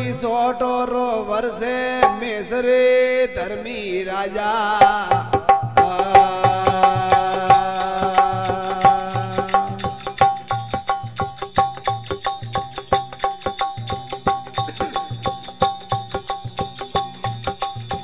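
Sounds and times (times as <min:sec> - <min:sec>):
drum beat: 0:04.8 - 0:18.0
hand cymbals jingling: 0:06.0 - 0:18.0
plucked strings: 0:09.4 - 0:18.0.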